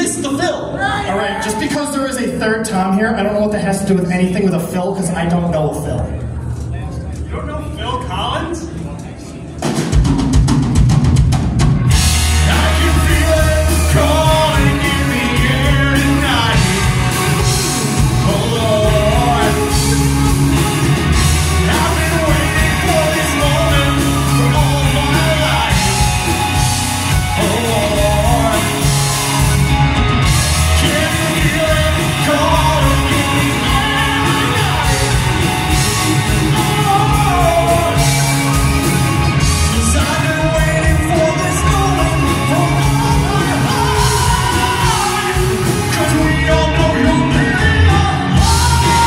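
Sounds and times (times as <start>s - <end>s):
live rock band playing: 9.6s - 49.0s
man singing: 12.2s - 29.6s, 30.2s - 49.0s.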